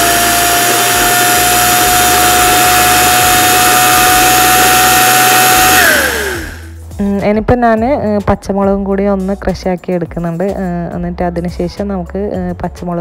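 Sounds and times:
electric food chopper whining: 0.0s - 6.8s.

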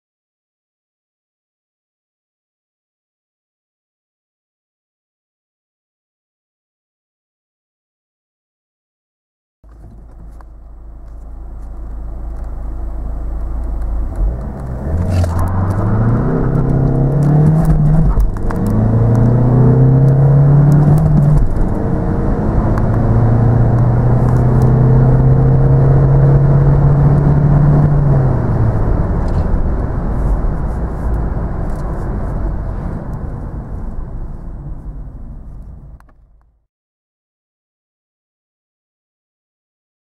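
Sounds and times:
diesel engine accelerating: 9.7s - 36.1s.

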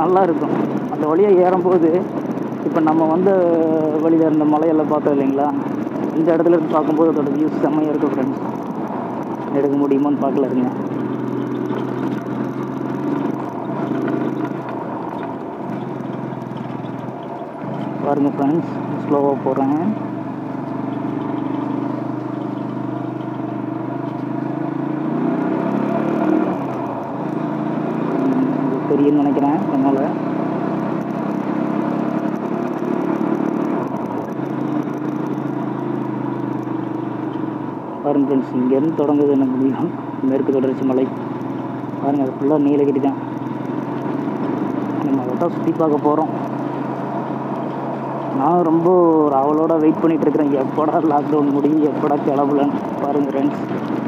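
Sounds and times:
motorcycle engine droning: 0.0s - 54.0s.

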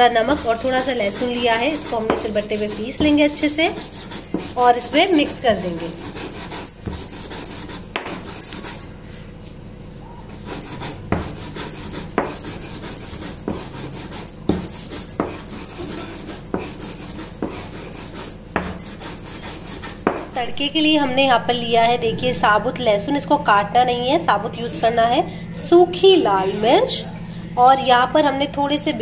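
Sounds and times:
stone roller crushing scrape: 0.0s - 8.9s, 10.4s - 20.4s
stone knocking on stone: 14.5s - 17.6s.

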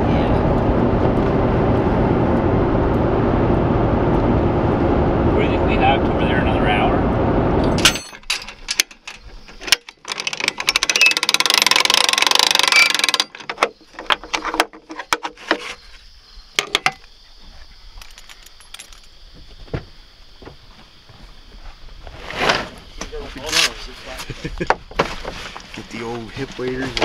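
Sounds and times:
winch ratchet clicking: 10.0s - 13.4s.

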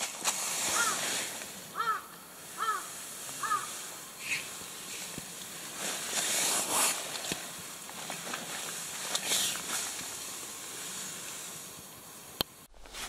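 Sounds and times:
faint steady hiss: 0.0s - 13.0s
bird cawing: 0.6s - 4.8s.

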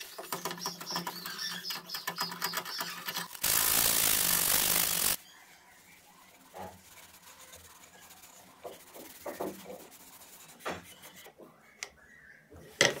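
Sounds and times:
sandpaper rubbing on wood: 3.4s - 5.2s, 6.4s - 11.2s.

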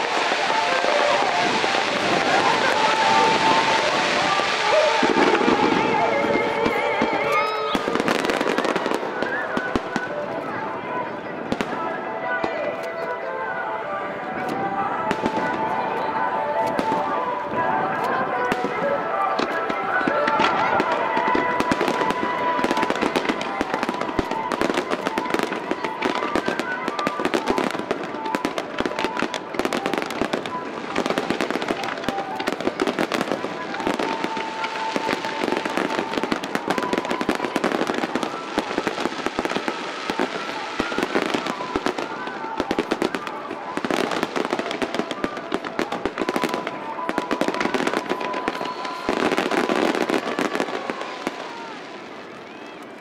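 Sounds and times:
fireworks whistling: 0.0s - 13.0s, 14.3s - 53.0s
fireworks bursting and crackling: 0.0s - 53.0s.

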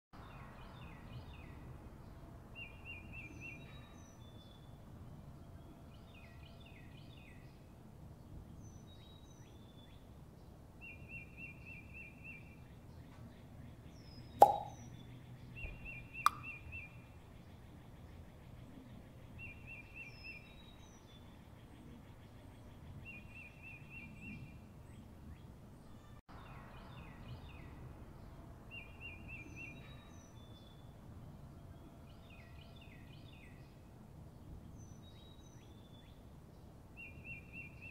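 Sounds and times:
birds chirping: 10.9s - 17.0s
sharp pop: 14.4s - 14.8s, 16.3s - 16.5s.

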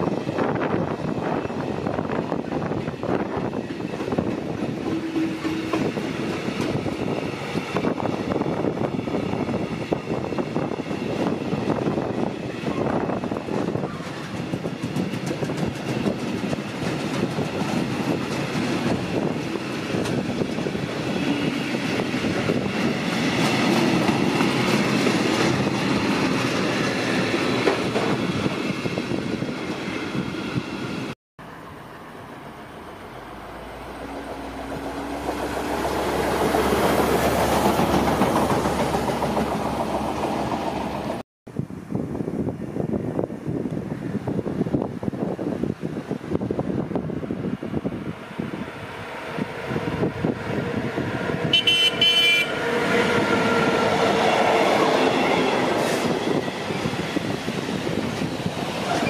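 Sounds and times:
train wheels clattering on track: 0.0s - 29.8s, 34.0s - 41.2s, 52.6s - 59.0s
approaching train rushing: 0.0s - 41.2s, 44.0s - 59.0s.

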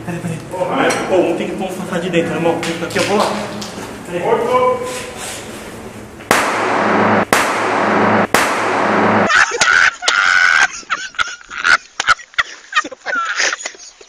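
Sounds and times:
harsh bursts of loud noise: 5.2s - 9.6s
man laughing hard: 9.3s - 14.0s.

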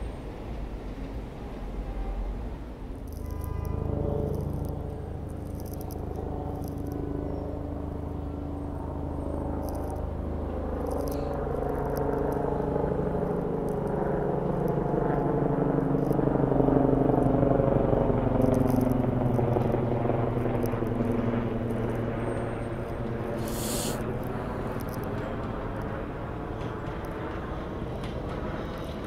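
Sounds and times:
subway train approaching: 0.0s - 4.0s.

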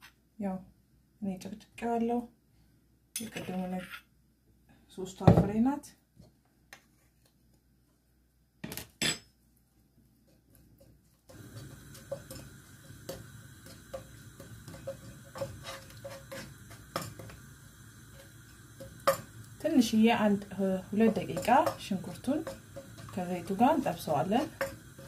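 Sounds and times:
spatula tapping and scraping pan: 10.3s - 17.4s, 18.1s - 19.3s, 20.9s - 25.0s.

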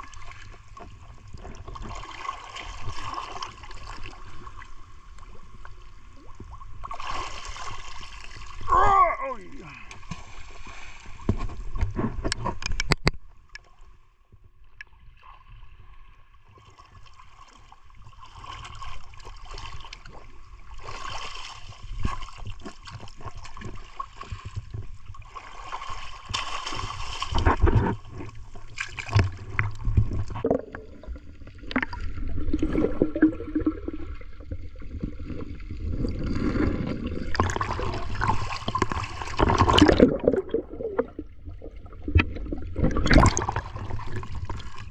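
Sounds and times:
seawater sloshing and gurgling: 0.0s - 12.7s, 16.4s - 44.9s
water rumbling against microphone: 0.0s - 44.9s
small splashes: 25.2s - 28.1s.

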